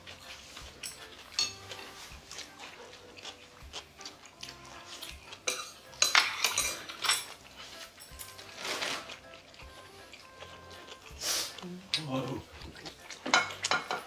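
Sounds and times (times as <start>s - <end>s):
chewing: 0.0s - 14.0s
chopsticks tapping plates: 0.2s - 3.4s, 4.4s - 11.1s, 11.9s - 14.0s
tableware clatter: 0.8s - 2.0s, 5.4s - 9.0s, 13.2s - 14.0s
ceramic cups clinking: 0.9s - 1.6s, 5.4s - 7.4s, 13.2s - 14.0s.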